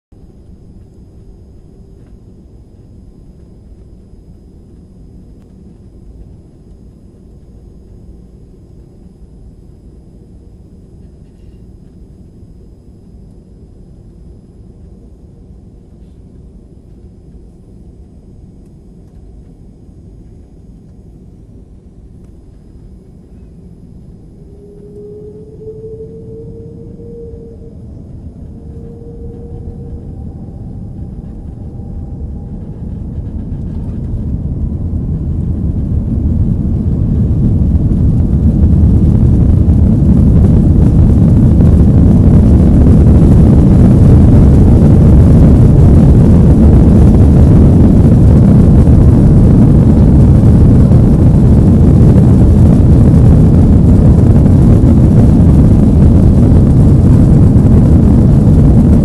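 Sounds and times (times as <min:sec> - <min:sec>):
faint rising whine: 0:00.1 - 0:59.0
jet engines spooling up: 0:13.9 - 0:59.0.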